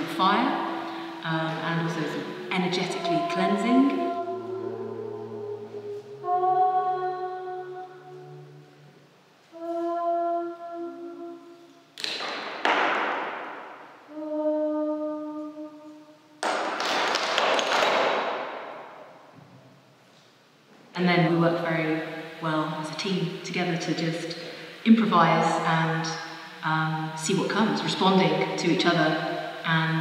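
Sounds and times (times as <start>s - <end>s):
slow held sung notes: 0.0s - 12.0s, 14.0s - 16.4s.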